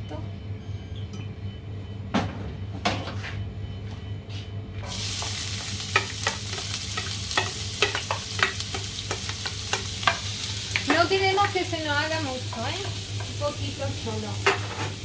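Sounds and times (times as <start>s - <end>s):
onion sizzling in frying pan: 4.8s - 15.0s
spoon tapping and scraping pan: 5.2s - 11.6s.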